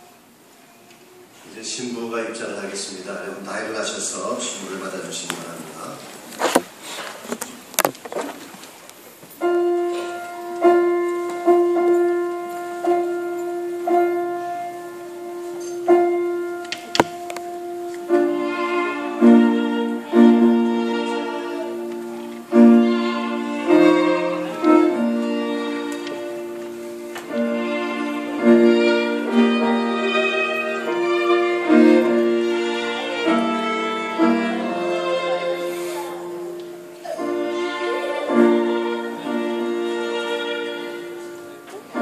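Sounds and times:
piano music: 9.3 - 42.0
violin: 9.4 - 42.0.

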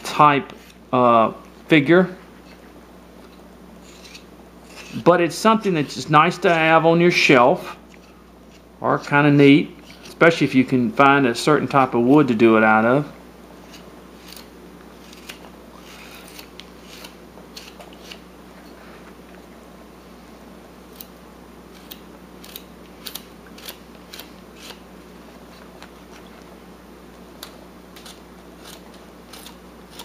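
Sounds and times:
knife cutting wood chips: 3.8 - 5.1, 13.6 - 18.3, 21.7 - 24.8, 27.3 - 30.0.

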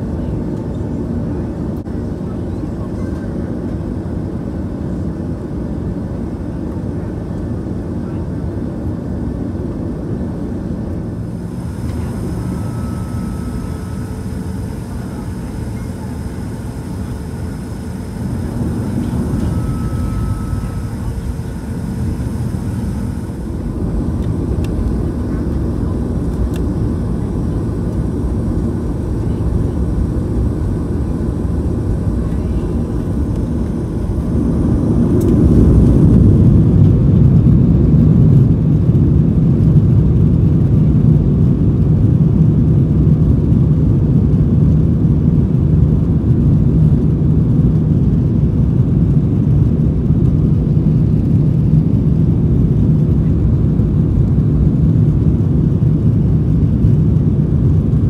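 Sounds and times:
jet engines spooling up: 10.1 - 38.3
takeoff roll rumble: 10.9 - 58.0.

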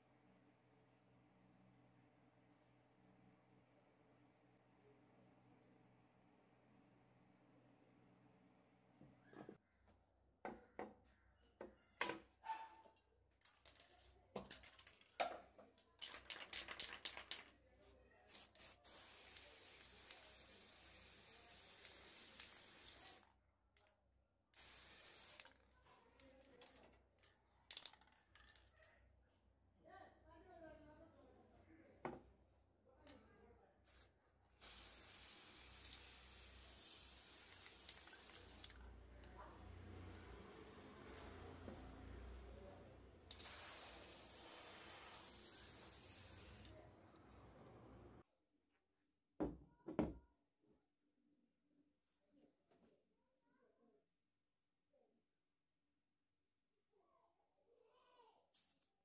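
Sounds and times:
spray paint can hissing: 18.3 - 23.2, 24.6 - 25.6, 33.9 - 38.9, 43.3 - 46.7.

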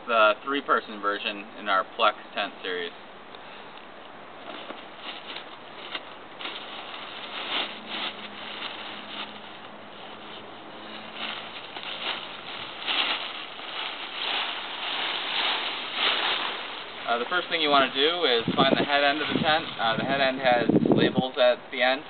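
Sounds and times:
tent fabric rustling: 4.4 - 20.4.

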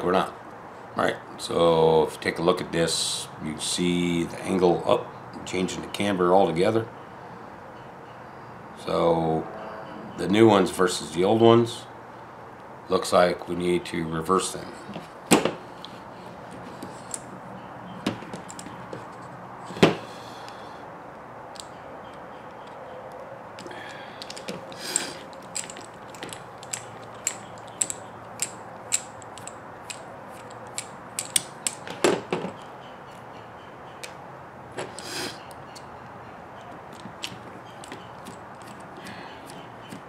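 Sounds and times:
small parts clicking and knocking: 14.8 - 20.6, 21.5 - 22.8, 23.6 - 32.7, 36.6 - 40.0.

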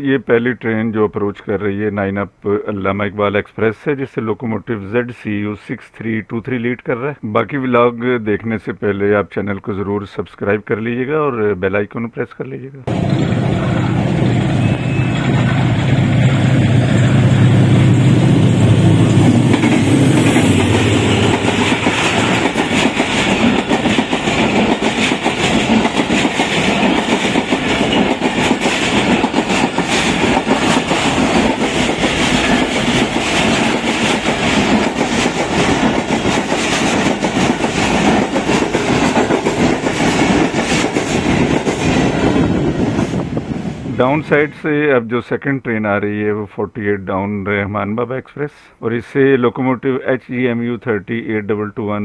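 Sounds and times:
diesel locomotive engine passing: 12.9 - 44.4
train coaches rumbling by: 12.9 - 44.5
wheels clickety-clack over rail joints: 19.0 - 43.2.

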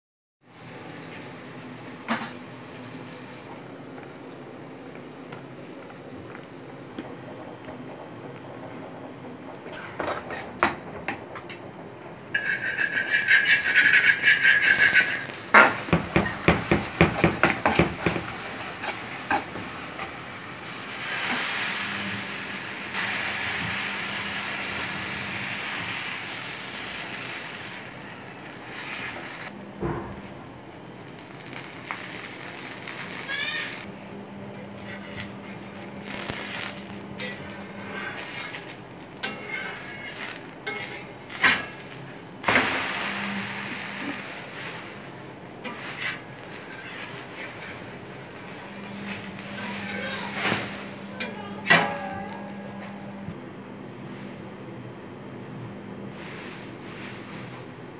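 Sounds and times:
batter sizzling on hot griddle: 12.3 - 53.3
utensils rattling and clattering: 12.4 - 19.6, 34.6 - 44.2, 45.6 - 53.2
utensil knock: 15.9 - 18.3.

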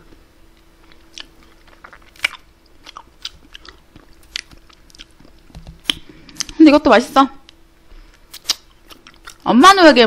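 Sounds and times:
mouth sounds eating: 0.8 - 6.6, 8.1 - 9.5
wet smacks and clicks: 0.9 - 6.6, 8.2 - 9.4.

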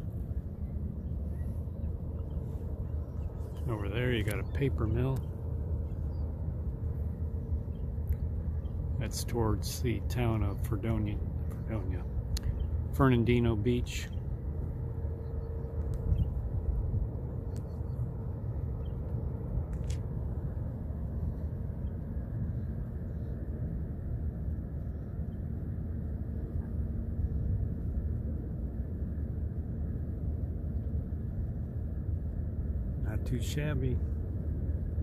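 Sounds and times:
low rumble by open water: 0.0 - 35.0
faint clicks: 12.3 - 12.6.

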